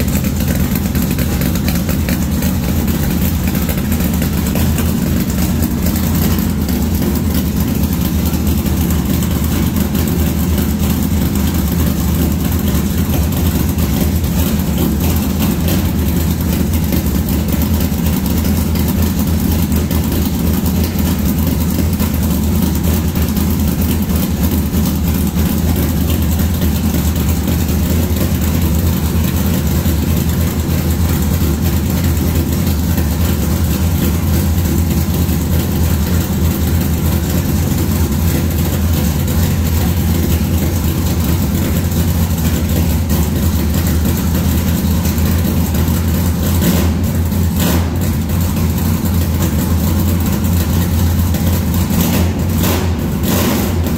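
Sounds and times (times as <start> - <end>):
loud car engine idling: 0.0 - 53.9.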